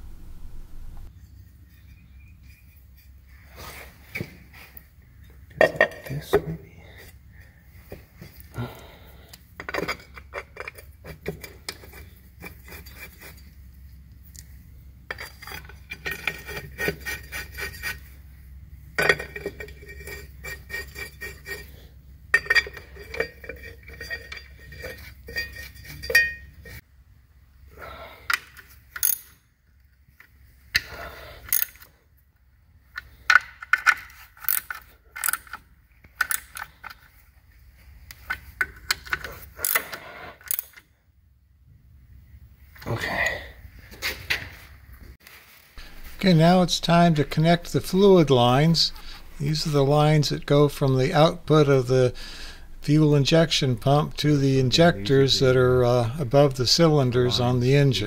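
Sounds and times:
low background hum: 0:00.0 - 0:44.0, 0:45.8 - 0:58.0
metal clinks of bolts and tools: 0:22.3 - 0:26.8, 0:28.3 - 0:29.4.

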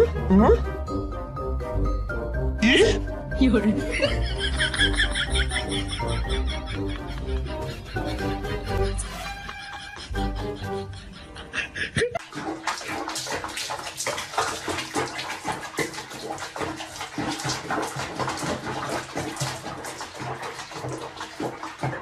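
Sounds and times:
music: 0:00.0 - 0:12.0
water splashing in a tub: 0:03.5 - 0:07.0, 0:12.1 - 0:22.0.

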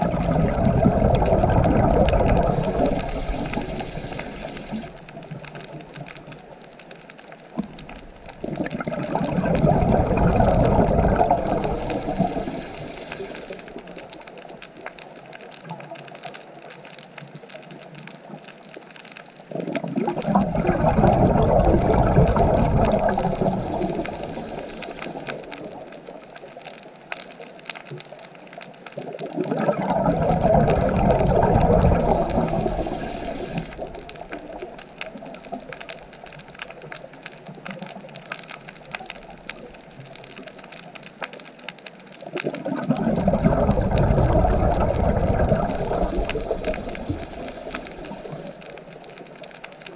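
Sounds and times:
faint underwater crackle: 0:00.0 - 0:49.9
underwater bubbles burbling: 0:00.0 - 0:49.9.

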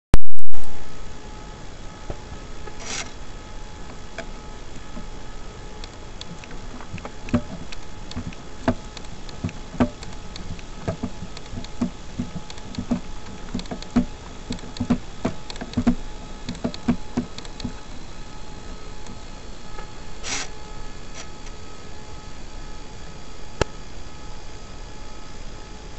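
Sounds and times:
faint steady hum: 0:00.2 - 0:25.9
hands knocking and tapping: 0:06.3 - 0:17.8.

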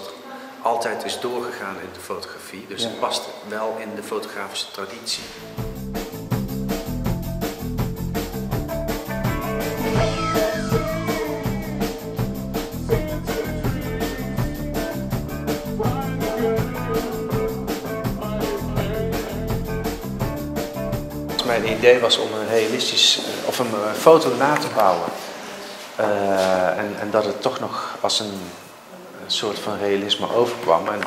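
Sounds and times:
instrumental music with quick beat: 0:05.5 - 0:22.0.

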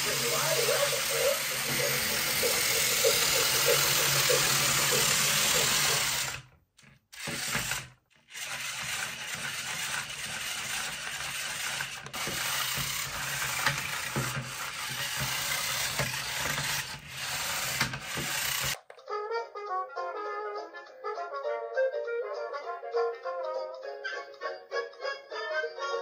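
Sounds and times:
toy train motor whirring: 0:00.0 - 0:18.9.

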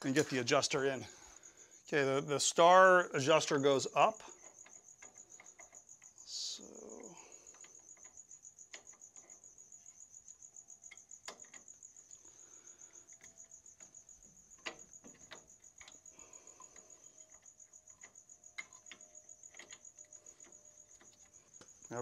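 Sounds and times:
cricket chirping: 0:00.0 - 0:22.0
sharp metallic clicks: 0:12.9 - 0:22.0.

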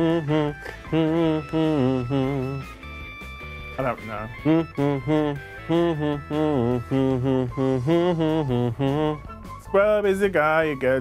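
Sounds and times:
man humming a melody: 0:00.0 - 0:03.0, 0:03.8 - 0:09.6.

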